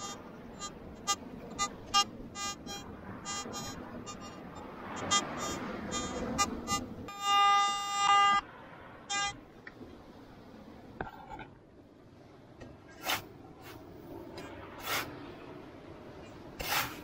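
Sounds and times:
metal detector beep: 0.0s - 8.4s, 9.1s - 9.4s
shovel scraping into sand: 13.0s - 13.8s, 14.8s - 15.1s, 16.6s - 17.0s.

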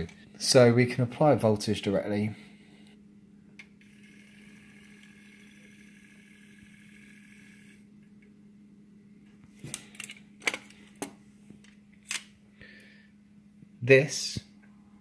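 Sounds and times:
small motor whining: 3.8s - 7.8s.

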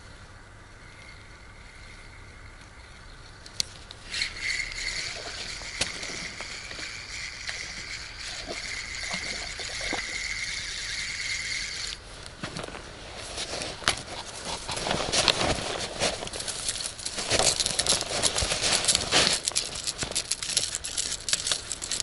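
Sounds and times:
spinning reel gear whir: 4.0s - 12.0s, 16.3s - 22.0s.

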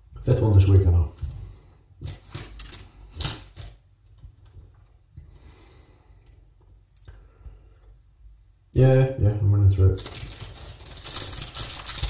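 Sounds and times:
glitchy static crackle: 10.0s - 12.0s.

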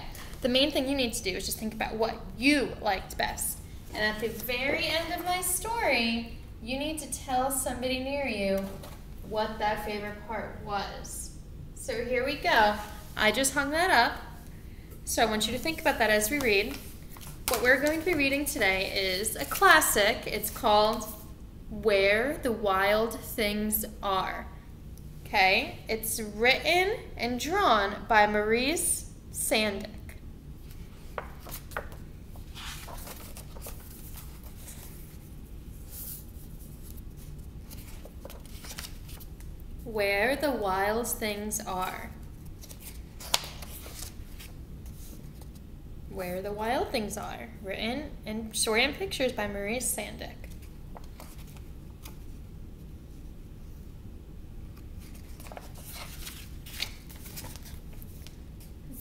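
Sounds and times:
book pages rustling: 15.4s - 19.7s, 30.6s - 39.6s, 42.2s - 45.7s, 50.4s - 52.4s, 54.7s - 58.8s.

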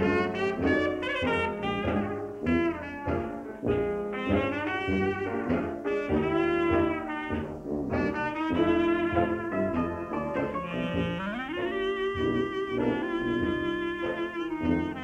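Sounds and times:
jazz band with brass: 0.0s - 15.0s.

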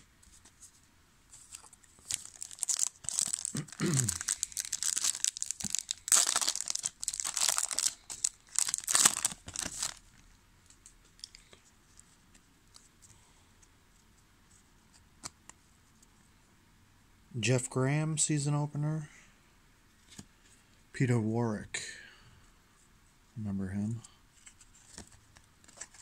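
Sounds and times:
foil wrapper tearing and crinkling: 1.6s - 10.0s.

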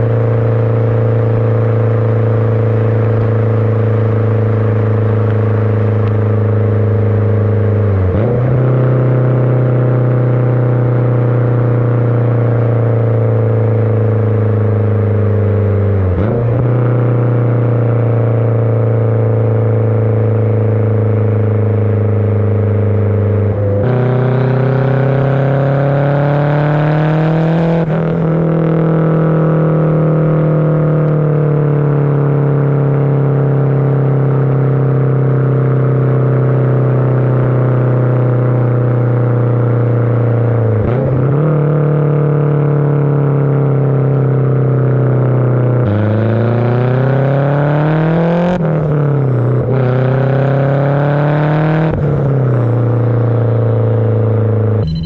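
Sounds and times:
loud car exhaust note: 0.0s - 55.0s.

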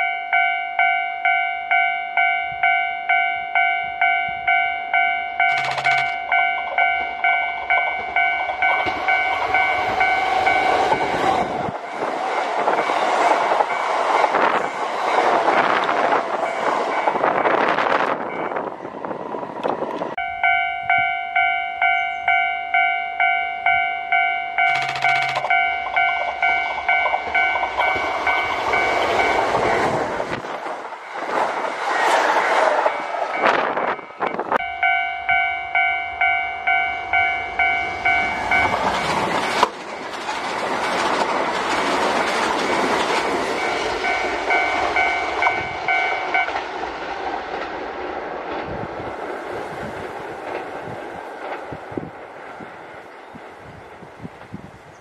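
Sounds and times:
level crossing warning bell: 0.0s - 11.8s, 16.4s - 18.7s, 20.2s - 30.0s, 32.9s - 39.1s, 43.6s - 46.6s
approaching train rumble: 0.0s - 55.0s.

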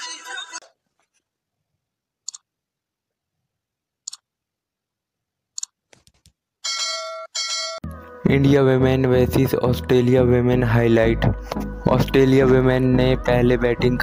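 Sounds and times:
music: 7.8s - 14.0s.

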